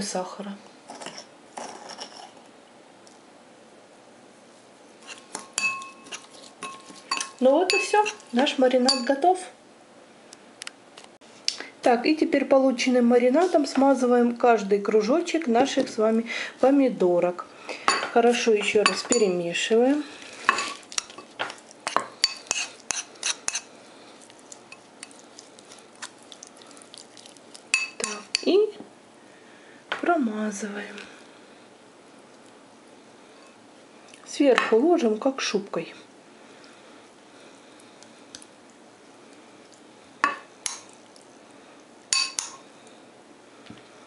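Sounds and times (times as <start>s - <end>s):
metal spoon stirring in a bowl: 5.0s - 9.3s, 17.9s - 28.6s, 42.1s - 42.6s
metal spoon clinking on plate: 5.4s - 8.2s, 42.1s - 42.6s.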